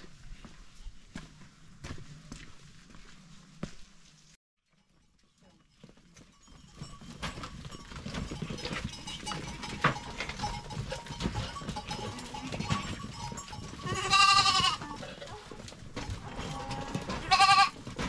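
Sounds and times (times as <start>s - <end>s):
goats moving about: 0.0s - 18.0s
knocks and rustles: 6.6s - 18.0s
goat bleating: 13.8s - 15.0s, 16.4s - 17.8s.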